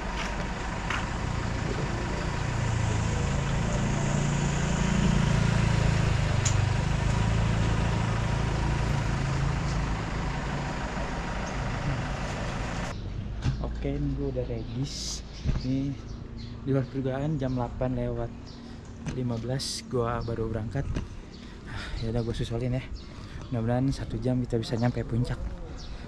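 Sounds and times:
vehicle engine humming: 0:00.0 - 0:26.0.

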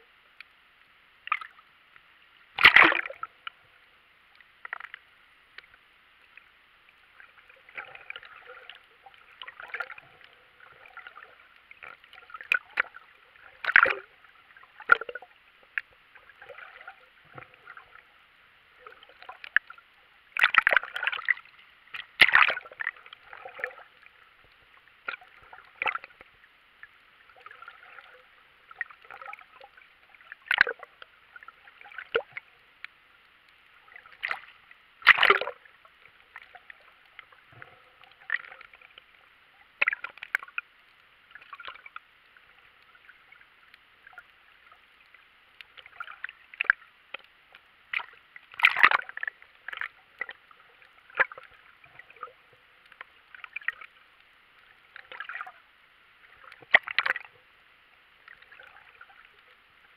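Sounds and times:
muffled underwater water noise: 0:00.0 - 0:59.9
water splash: 0:02.5 - 0:03.3, 0:10.8 - 0:14.1, 0:20.4 - 0:23.9, 0:30.2 - 0:32.4, 0:33.9 - 0:35.7, 0:47.9 - 0:50.3, 0:56.3 - 0:57.3
gurgles clicks and knocks: 0:22.1 - 0:22.6.

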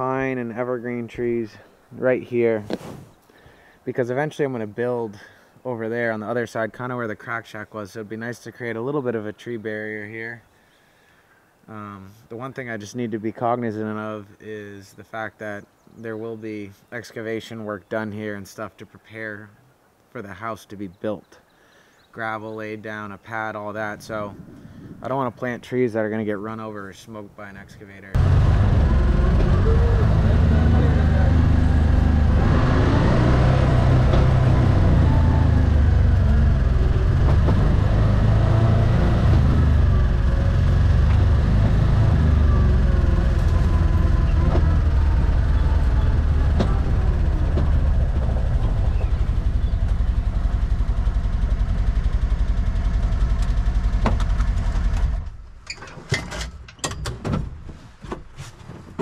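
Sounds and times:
small engine running: 0:28.2 - 0:55.3.

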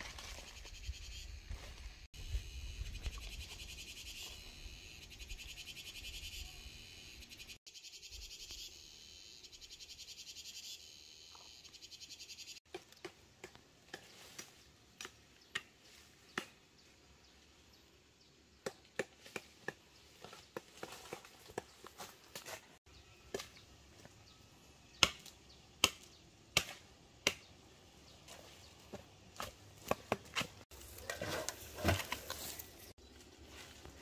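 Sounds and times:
insects trilling: 0:00.5 - 0:12.6.

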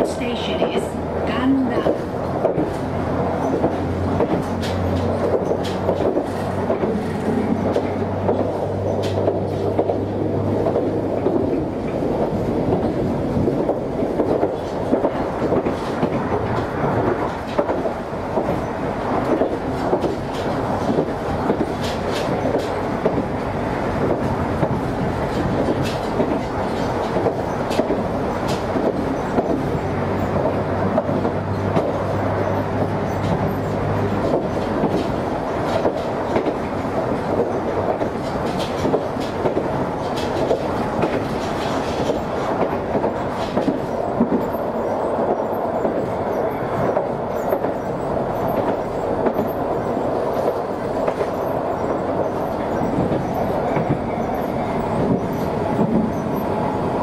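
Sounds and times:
train wheels rumbling on rail: 0:00.0 - 0:57.0
clicks over rail joints: 0:01.8 - 0:56.6.

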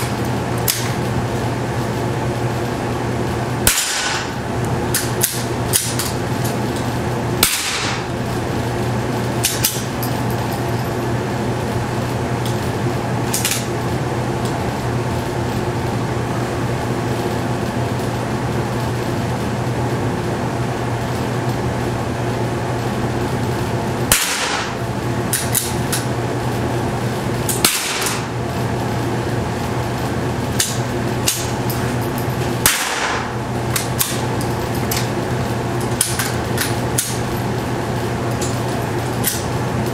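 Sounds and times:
steady low hum: 0:00.0 - 0:39.9
rifle shots: 0:03.7 - 0:04.3, 0:07.4 - 0:08.0, 0:24.1 - 0:24.8, 0:27.6 - 0:28.2, 0:32.6 - 0:33.3.

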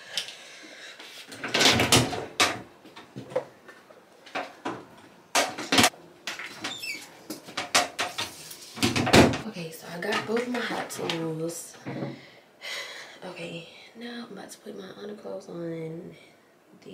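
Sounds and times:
objects knocking and scraping: 0:01.2 - 0:09.4, 0:10.0 - 0:12.2.

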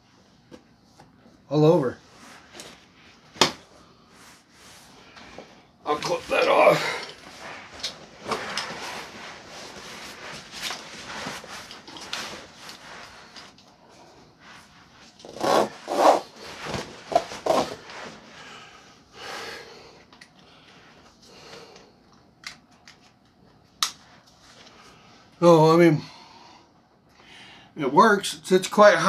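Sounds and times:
fabric straps rubbing and rustling: 0:05.9 - 0:18.4.

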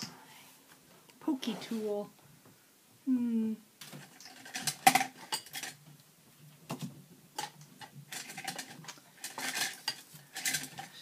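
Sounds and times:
metal tools clinking and rattling: 0:04.0 - 0:05.8, 0:07.4 - 0:11.0.

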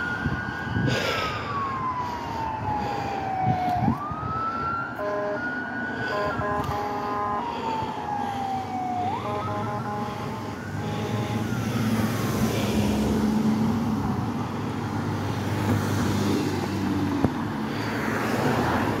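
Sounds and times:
fire truck siren: 0:00.0 - 0:19.0
heavy truck engine passing: 0:08.4 - 0:19.0.

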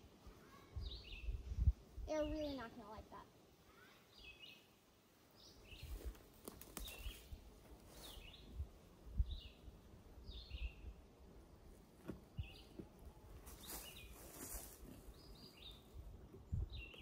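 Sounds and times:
songbird singing: 0:00.4 - 0:03.2, 0:03.8 - 0:17.0
wind rumbling on microphone: 0:00.8 - 0:02.4, 0:08.2 - 0:09.6, 0:15.1 - 0:17.0.

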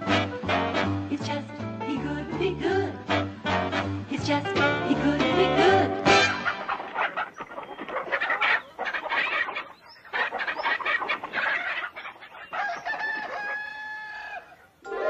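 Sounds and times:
cartoon chickens squawking: 0:05.6 - 0:15.0
long drawn-out chicken call: 0:10.3 - 0:15.0.

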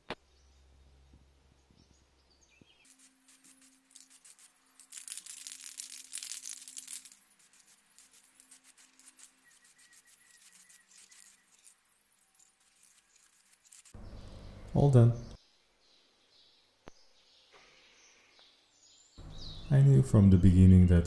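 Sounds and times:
spray paint can hissing: 0:02.8 - 0:14.0.

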